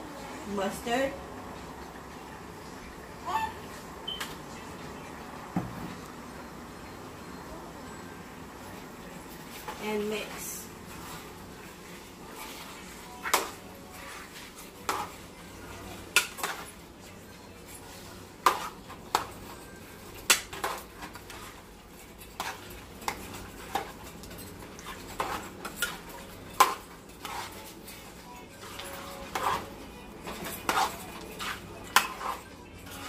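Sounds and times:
spatula scraping metal pot: 20.5s - 33.0s.

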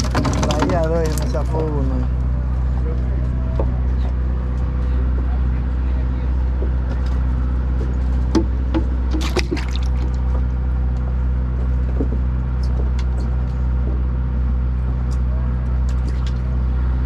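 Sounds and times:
boat engine humming: 0.0s - 17.0s
fish splashing into water: 9.0s - 10.4s.

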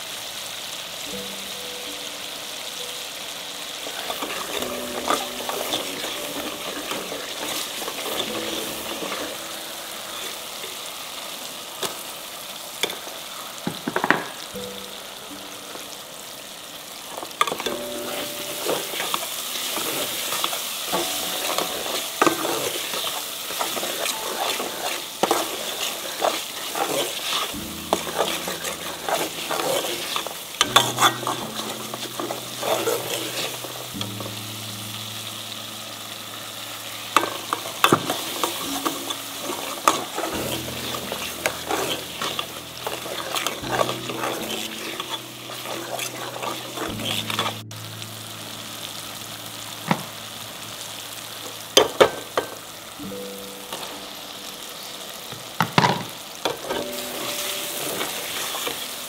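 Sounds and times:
curry paste sizzling in oil: 0.0s - 59.0s
metal ladle scraping a pot: 3.9s - 9.4s, 17.5s - 34.0s, 37.2s - 47.6s.

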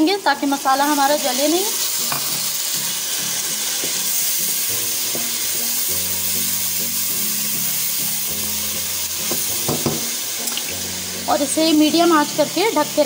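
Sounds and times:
masala sizzling in hot oil: 0.0s - 13.0s.

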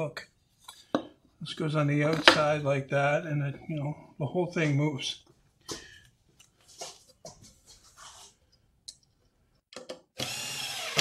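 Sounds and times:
cordless drill whining: 10.2s - 11.0s.

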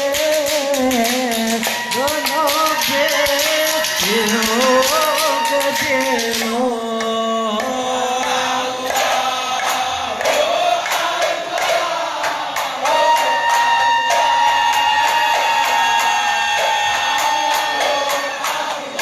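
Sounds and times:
frame drum beats: 0.0s - 6.6s
men chanting: 0.0s - 19.0s.

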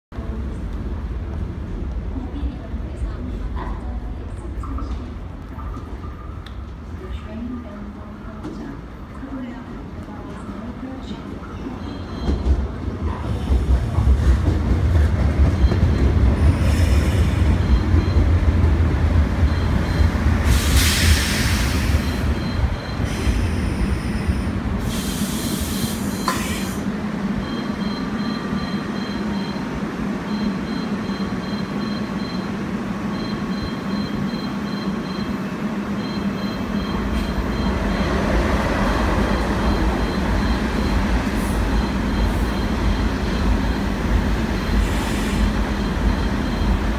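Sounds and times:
train equipment humming: 0.2s - 46.9s
electric train braking: 19.6s - 26.9s, 36.2s - 46.9s.

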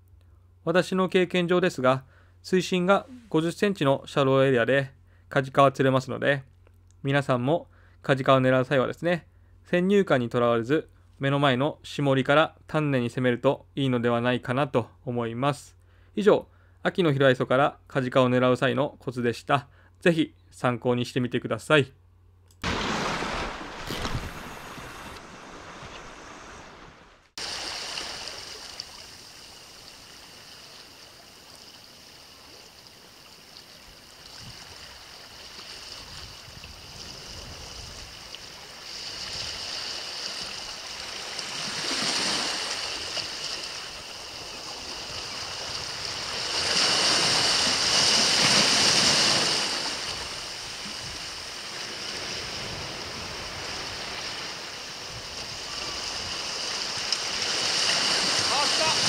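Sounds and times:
sea waves washing on rocks: 22.6s - 31.0s, 44.8s - 59.0s.

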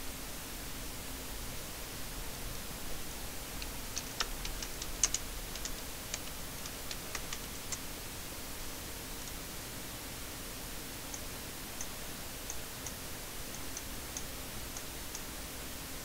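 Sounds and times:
background hiss: 0.0s - 16.0s
computer keyboard typing: 3.6s - 7.9s.

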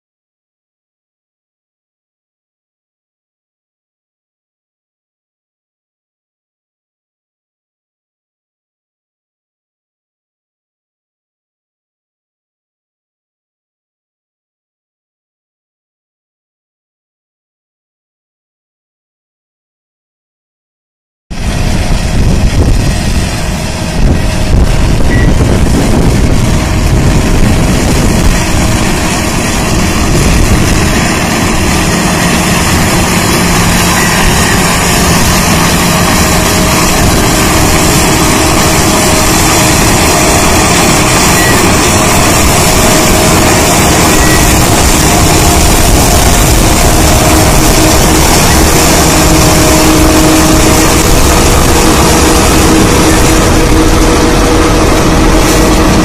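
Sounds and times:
harvester machinery running: 21.3s - 56.0s.

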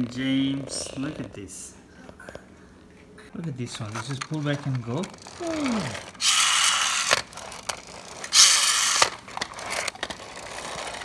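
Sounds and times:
toy wheels rasping and clicking: 3.7s - 11.0s
toy spring motor whine: 5.0s - 11.0s.

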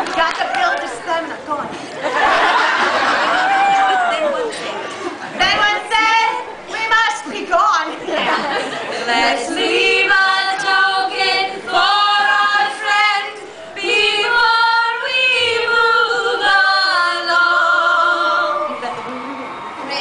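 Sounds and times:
women singing in harmony: 8.8s - 19.0s.

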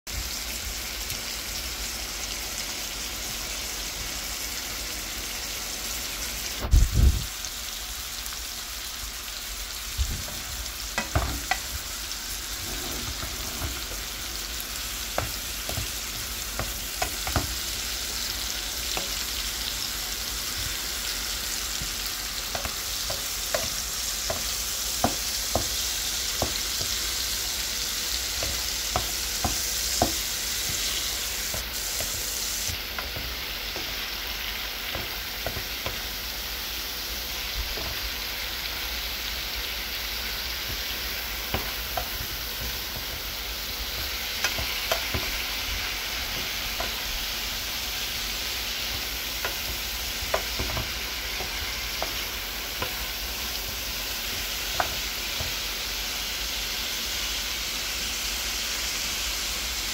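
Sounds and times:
liver sizzling in a frying pan: 0.1s - 59.9s
spatula knocking against pan: 11.0s - 11.7s, 15.1s - 17.7s, 21.7s - 27.3s, 28.3s - 30.9s, 34.8s - 36.1s, 48.9s - 52.2s.

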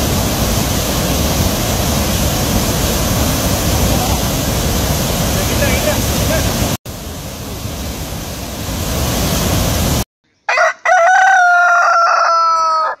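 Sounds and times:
rushing river water: 0.0s - 10.0s
rooster crowing: 10.5s - 13.0s.

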